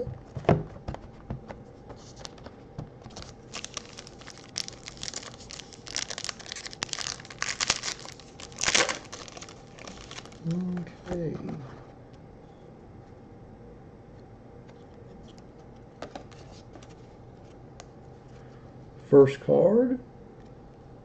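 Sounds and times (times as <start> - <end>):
cardboard box knocks: 0.3 - 1.4
wrapper crinkling and tearing: 3.1 - 10.8.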